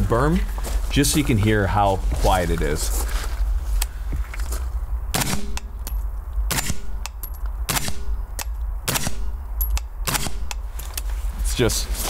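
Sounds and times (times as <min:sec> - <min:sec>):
suppressed rifle shots: 0:05.1 - 0:05.8, 0:06.5 - 0:08.2, 0:08.8 - 0:10.6.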